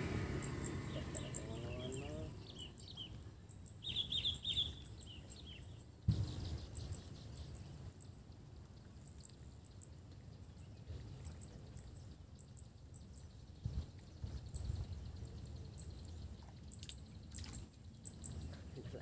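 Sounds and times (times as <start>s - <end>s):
low rumble on microphone: 6.0s - 7.9s, 13.1s - 19.0s.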